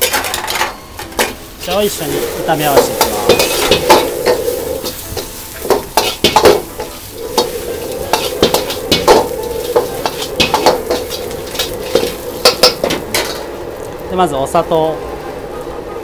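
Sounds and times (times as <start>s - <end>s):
oil sizzling: 0.9s - 16.0s
metal ladle scraping a wok: 1.6s - 13.8s.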